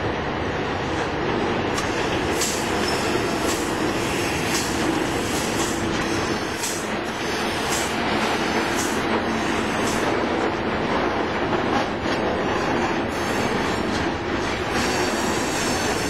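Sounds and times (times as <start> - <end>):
freight train rumbling past: 0.0 - 16.0.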